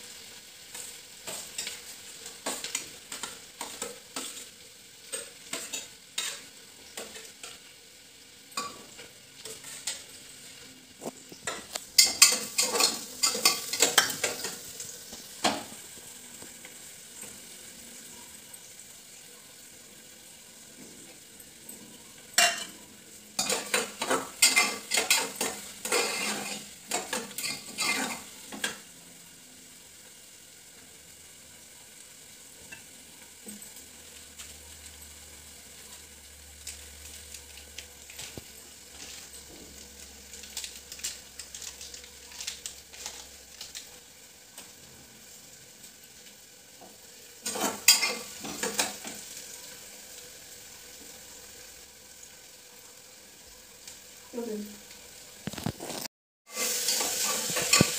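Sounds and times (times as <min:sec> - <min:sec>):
metal spoon scraping a pan: 0:00.0 - 0:07.7, 0:08.5 - 0:15.8, 0:21.9 - 0:28.9, 0:38.0 - 0:43.9, 0:47.2 - 0:49.3, 0:55.4 - 0:57.9
food sizzling: 0:00.0 - 0:57.9.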